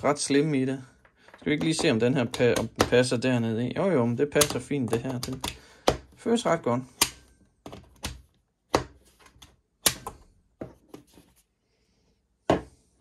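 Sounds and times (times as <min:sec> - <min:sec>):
plastic clicks and knocks: 0:01.2 - 0:03.1, 0:04.3 - 0:06.2, 0:07.0 - 0:11.0.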